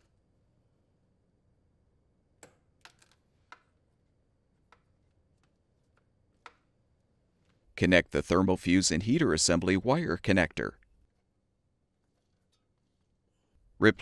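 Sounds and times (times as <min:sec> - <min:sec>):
faint clicks and taps from handling wires: 0:04.6 - 0:06.8.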